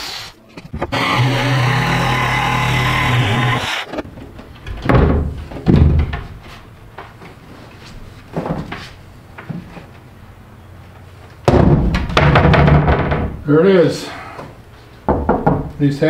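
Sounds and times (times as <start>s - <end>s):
knocks and thumps on truck wall: 4.7s - 6.5s, 11.4s - 13.4s, 15.1s - 15.8s.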